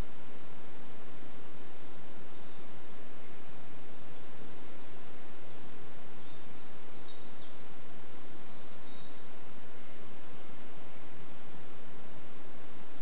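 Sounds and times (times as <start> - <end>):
bird chirps: 2.3 - 10.6.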